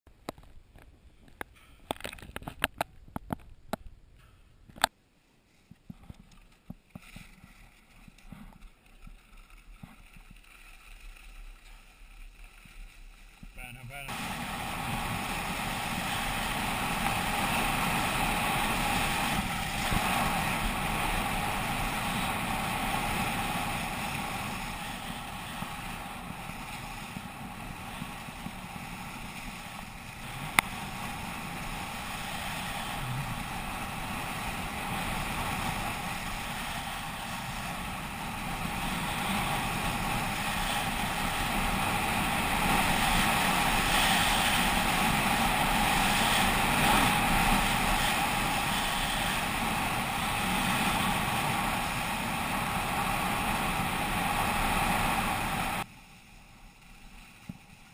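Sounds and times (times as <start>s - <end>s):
skis hissing on snow: 8.4s - 57.9s
wind on camera microphone: 13.3s - 55.8s.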